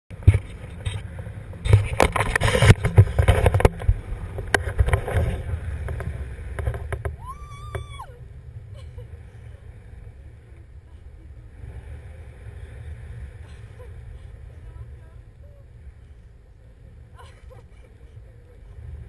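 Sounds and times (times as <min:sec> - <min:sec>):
wind buffeting microphone: 0:00.2 - 0:19.0
knocks and rattles: 0:01.6 - 0:07.9.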